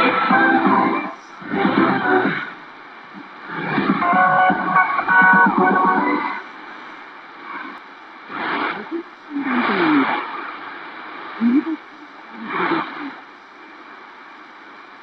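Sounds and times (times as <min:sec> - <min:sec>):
radio music: 0:00.0 - 0:10.2
radio static hiss: 0:00.0 - 0:15.0.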